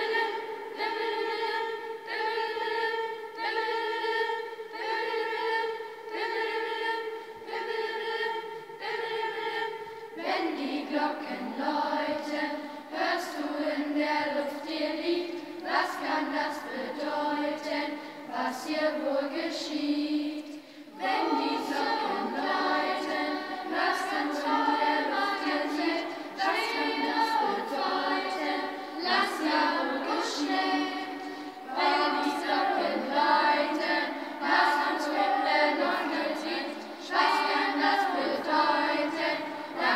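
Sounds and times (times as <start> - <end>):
children's choir singing: 0.0 - 39.9.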